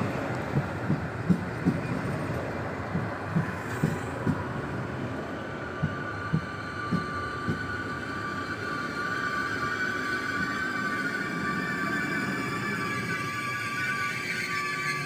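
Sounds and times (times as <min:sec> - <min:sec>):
train wheels thudding over rail joints: 0:00.0 - 0:07.8
two-tone high-pitched whine: 0:03.4 - 0:15.0.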